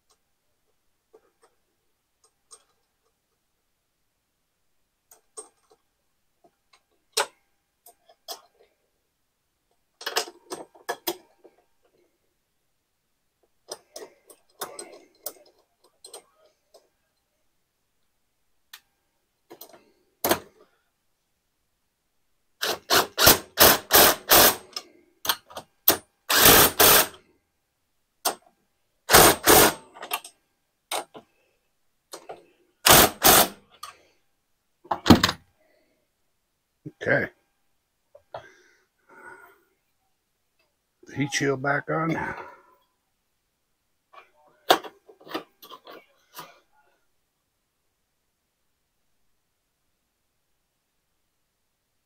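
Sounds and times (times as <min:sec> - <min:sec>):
cordless power driver bursts: 0:22.6 - 0:24.7, 0:26.3 - 0:27.2, 0:29.1 - 0:29.8, 0:32.8 - 0:33.6.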